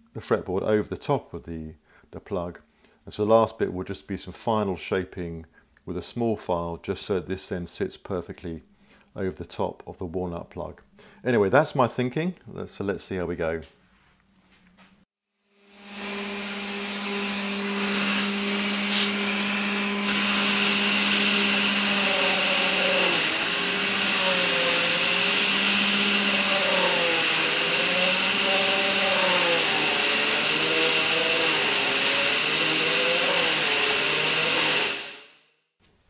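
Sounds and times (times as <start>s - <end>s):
shop vacuum running: 15.5s - 35.4s
rotary tool whining and grinding: 15.5s - 35.5s.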